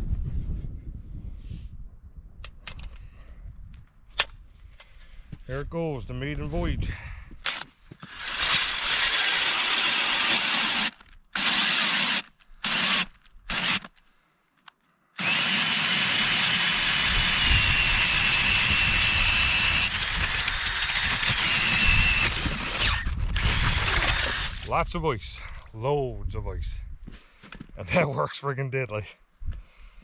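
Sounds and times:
cordless drill whining: 7.5 - 14.0, 15.2 - 24.6.

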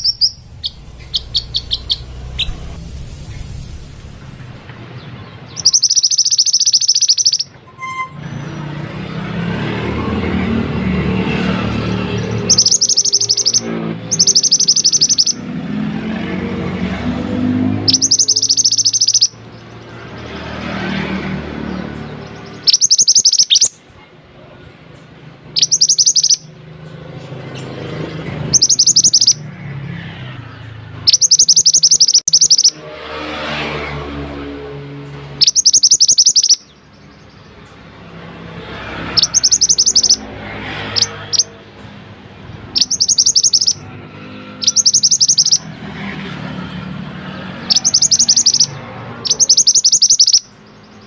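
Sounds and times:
bird high-pitched trills: 0.0 - 3.5, 4.2 - 8.8, 11.3 - 15.5, 17.6 - 20.3, 21.8 - 23.8, 25.5 - 26.5, 28.4 - 29.5, 31.0 - 32.9, 35.3 - 37.6, 38.7 - 41.6, 42.7 - 45.8, 47.6 - 51.0
low background rumble: 0.0 - 5.6.

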